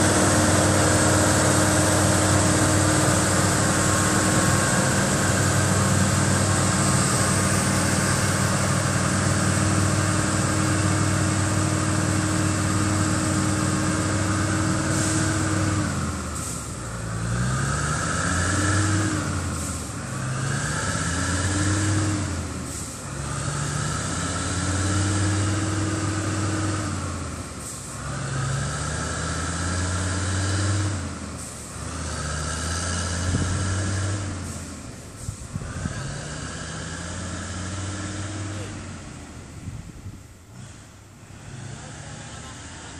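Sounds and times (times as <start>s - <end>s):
truck diesel engine pulling away: 0.0s - 42.9s.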